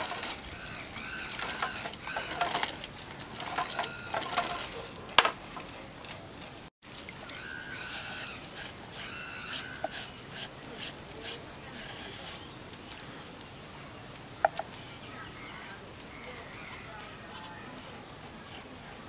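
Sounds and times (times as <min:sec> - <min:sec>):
pole lathe squeaking: 0:00.0 - 0:05.3.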